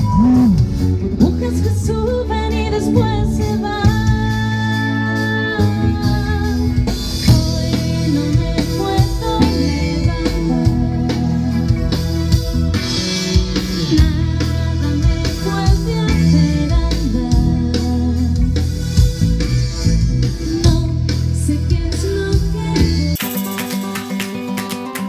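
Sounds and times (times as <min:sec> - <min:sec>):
woman singing: 0:00.0 - 0:12.0, 0:13.8 - 0:18.6, 0:20.5 - 0:23.2
drum kit: 0:00.0 - 0:25.0
electric guitars: 0:00.0 - 0:25.0.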